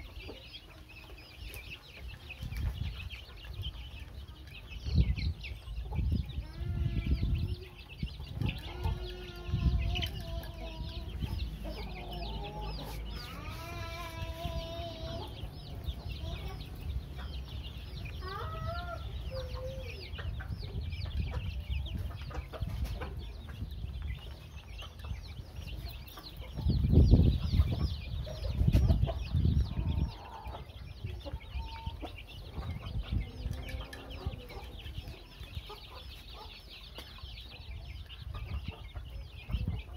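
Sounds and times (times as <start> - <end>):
chicks peeping: 0.0 - 39.9
chicken calling: 5.8 - 17.3.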